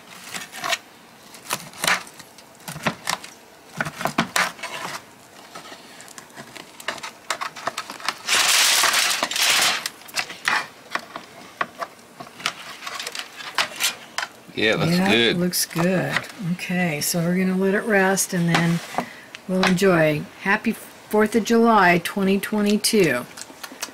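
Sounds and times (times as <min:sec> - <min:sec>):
loud rustling: 0:03.8 - 0:11.4.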